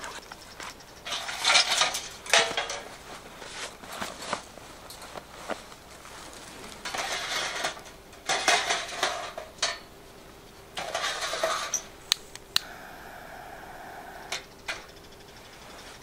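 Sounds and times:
metal stove clattering and scraping: 0:01.0 - 0:04.3, 0:06.5 - 0:09.9, 0:10.8 - 0:12.0
lighter flame hissing: 0:12.1 - 0:14.5.

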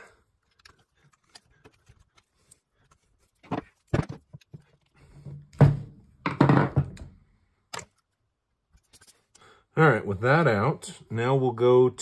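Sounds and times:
metal part knocking on workbench: 0:05.6 - 0:07.1.

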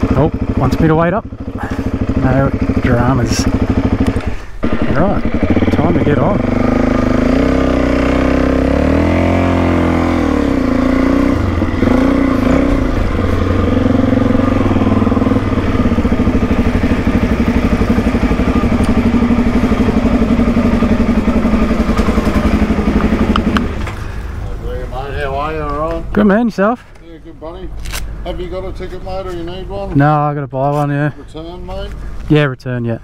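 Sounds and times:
motorcycle engine at low revs: 0:00.0 - 0:24.4.

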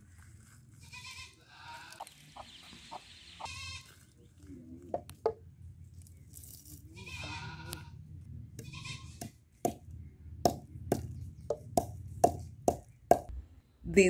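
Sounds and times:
goat bleating: 0:00.8 - 0:02.1, 0:03.4 - 0:04.0, 0:06.9 - 0:08.0, 0:08.6 - 0:09.2
wooden pestle knocking in mortar: 0:09.2 - 0:09.8, 0:10.4 - 0:13.3.

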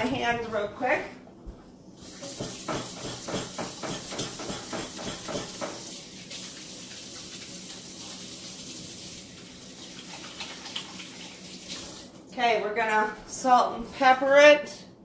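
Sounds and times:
faucet running: 0:02.0 - 0:12.2.

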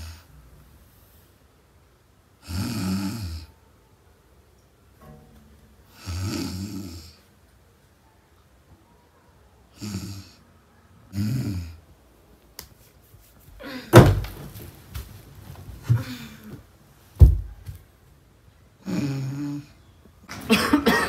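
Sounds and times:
woman snoring: 0:02.4 - 0:03.5, 0:06.0 - 0:07.2, 0:09.8 - 0:10.4, 0:18.8 - 0:19.7
thumps on a sofa: 0:13.9 - 0:16.0, 0:17.2 - 0:17.8.

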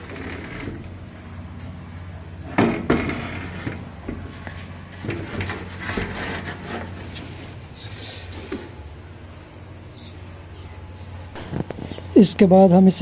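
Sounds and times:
clicks and rustling: 0:11.4 - 0:12.2.

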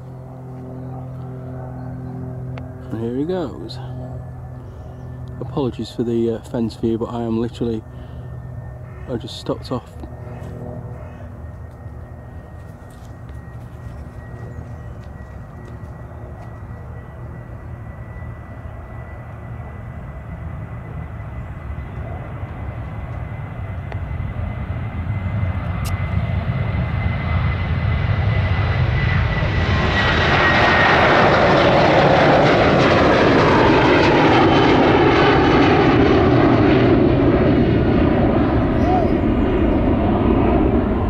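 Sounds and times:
high jet whine falling in pitch: 0:00.0 - 0:41.0
jet engines at take-off: 0:00.0 - 0:41.0.

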